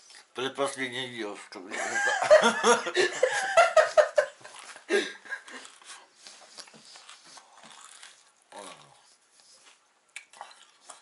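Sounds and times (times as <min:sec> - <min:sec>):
man laughing: 0:01.7 - 0:05.4.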